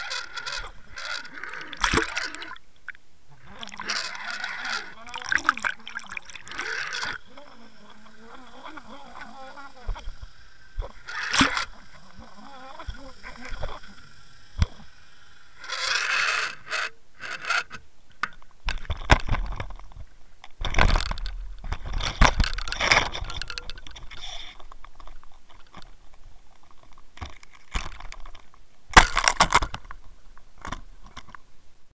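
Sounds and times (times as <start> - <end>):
gear scraping against boat: 0.0 - 2.6, 3.4 - 14.0, 20.6 - 26.0.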